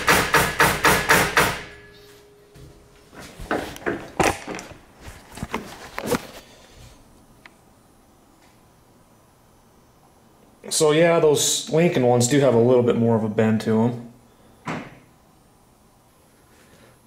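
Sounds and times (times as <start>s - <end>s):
fist pounding steel table: 0.0s - 1.8s.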